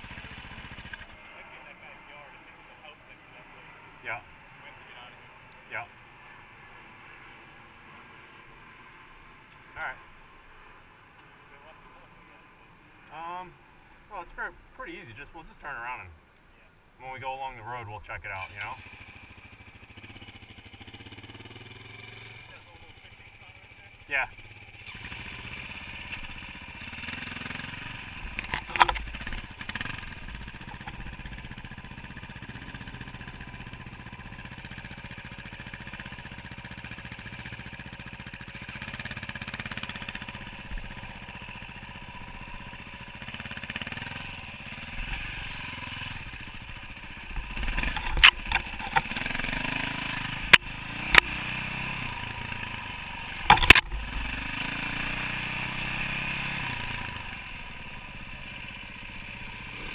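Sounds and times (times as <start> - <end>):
dirt bike engine running: 0.0 - 2.0, 18.4 - 59.9
sharp knocks and clatter: 53.5 - 53.9.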